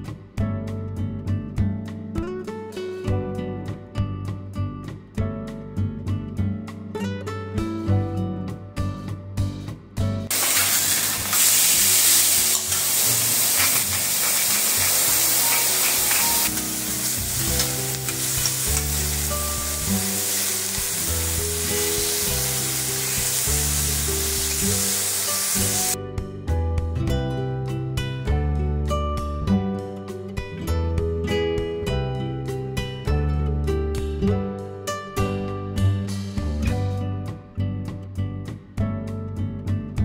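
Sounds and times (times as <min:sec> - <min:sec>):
jazz guitar music: 0:00.7 - 0:08.7, 0:10.2 - 0:40.0
food sizzling on a griddle: 0:10.3 - 0:26.0.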